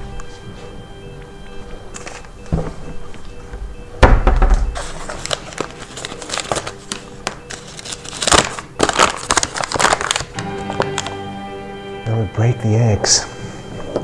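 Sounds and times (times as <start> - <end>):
heavy thud: 4.0 - 4.8
paper bag crinkling: 4.8 - 11.2.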